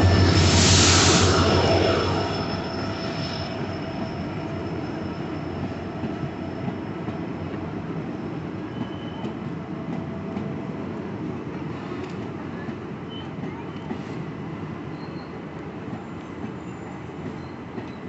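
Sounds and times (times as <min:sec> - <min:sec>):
train rumbling on track: 0:00.0 - 0:18.0
faint wheel squeal: 0:08.6 - 0:09.4, 0:14.9 - 0:15.4.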